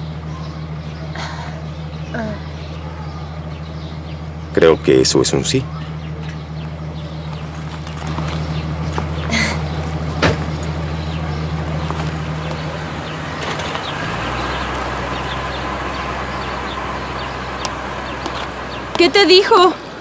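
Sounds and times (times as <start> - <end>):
car engine idling: 0.0 - 20.0
car pulling away: 0.0 - 20.0
car door shutting: 10.2 - 10.7.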